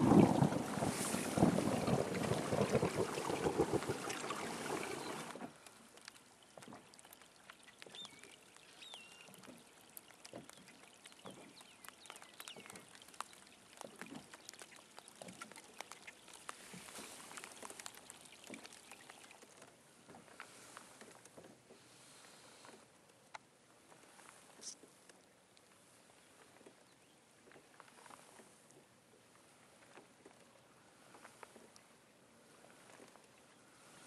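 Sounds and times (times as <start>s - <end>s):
wind buffeting the microphone: 0.0s - 5.4s
water lapping and dripping: 0.0s - 34.0s
faint ticks: 2.7s - 25.8s
faint bird chirps: 7.6s - 9.9s.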